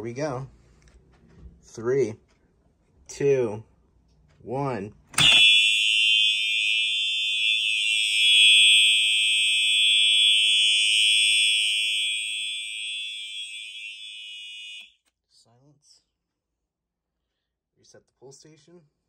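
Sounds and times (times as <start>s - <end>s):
fire alarm pull station snapping: 5.1s - 14.9s
buzzy alarm horn tone: 5.2s - 14.9s.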